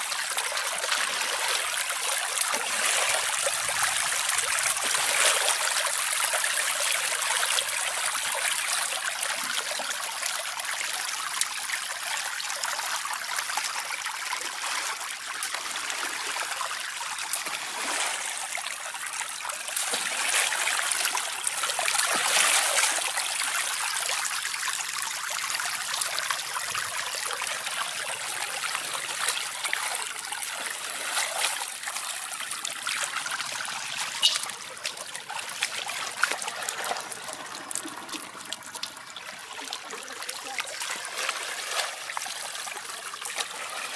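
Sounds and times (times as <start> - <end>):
shallow water trickling: 14.8 - 43.9.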